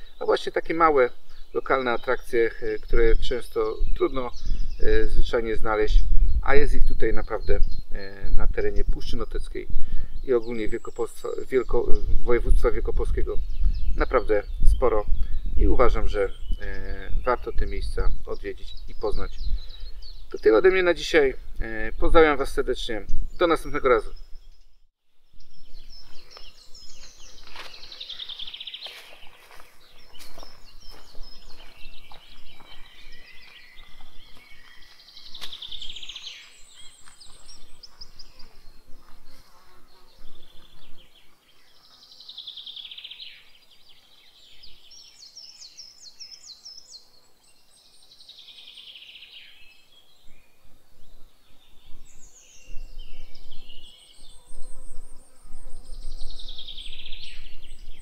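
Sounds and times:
birds chirping: 0.0s - 58.0s
songbird trilling: 25.4s - 38.8s, 51.6s - 58.0s.

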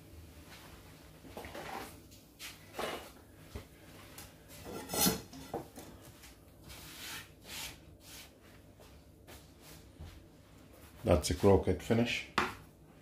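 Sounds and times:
kitchenware scraping and knocking: 4.6s - 5.9s.

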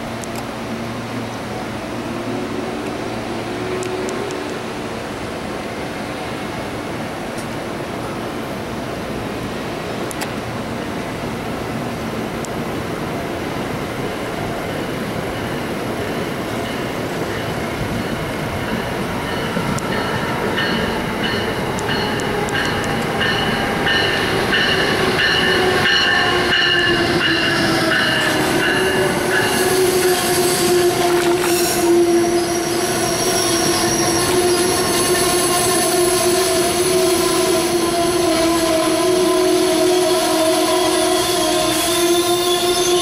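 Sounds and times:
train wheels rumbling: 9.1s - 43.0s
train wheels squealing: 16.7s - 43.0s.

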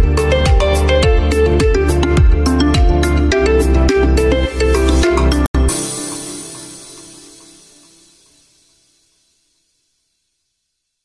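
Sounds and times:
background music with beat: 0.0s - 8.7s.

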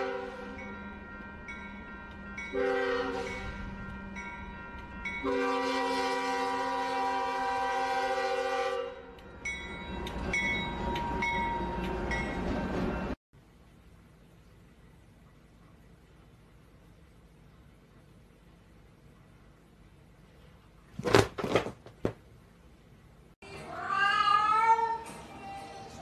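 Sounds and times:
model locomotive multi-tone horn: 0.0s - 0.7s, 2.5s - 3.7s, 5.2s - 9.2s.

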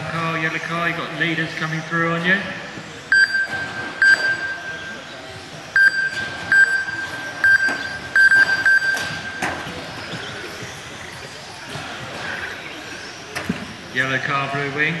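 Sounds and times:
lap timing system beeping: 3.1s - 11.3s.

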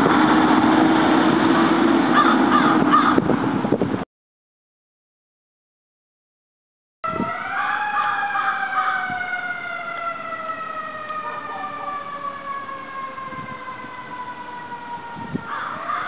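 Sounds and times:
fire truck siren: 0.0s - 3.3s, 7.0s - 16.0s.

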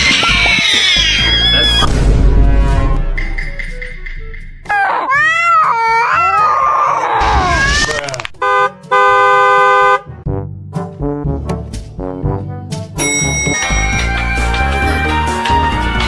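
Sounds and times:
horn honks: 8.4s - 10.2s.

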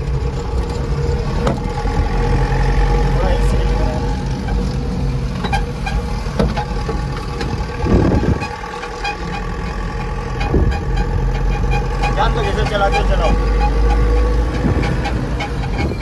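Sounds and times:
truck diesel engine running: 0.0s - 16.0s
cab rattles and clicks: 4.0s - 16.0s.

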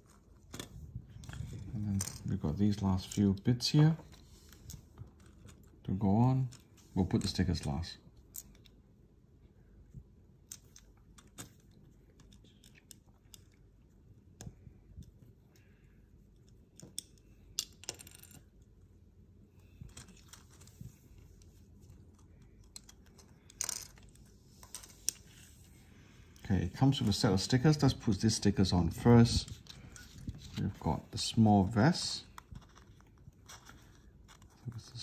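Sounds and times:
plastic bricks clicking: 16.4s - 18.7s.

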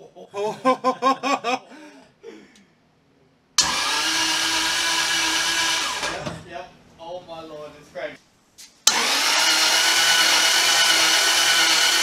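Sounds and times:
man laughing: 0.0s - 2.6s
engine starter cranking: 3.6s - 6.2s, 8.9s - 12.0s.

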